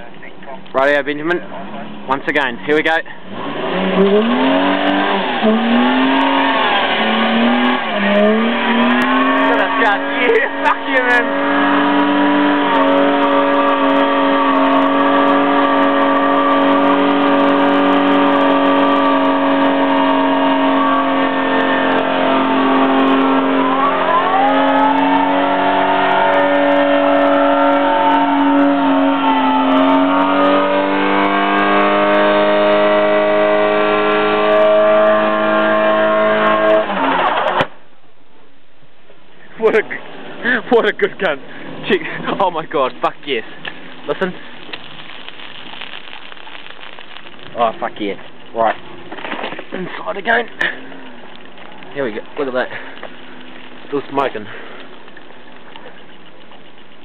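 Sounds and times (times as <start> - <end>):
car engine at high revs: 0.5 - 37.7
tyre spinning on road: 3.4 - 37.8.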